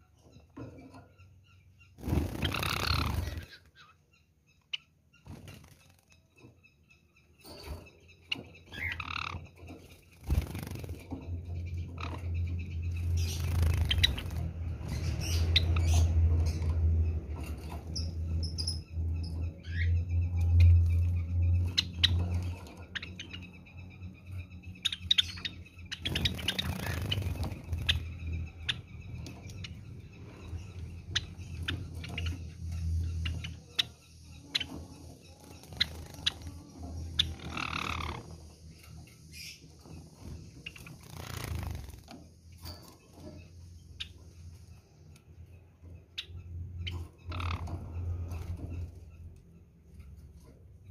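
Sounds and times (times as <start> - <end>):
sparrows chirping: 0.0 - 50.9
wings flapping: 2.0 - 3.6, 10.1 - 11.3, 13.2 - 14.6, 26.0 - 28.2, 40.8 - 42.2.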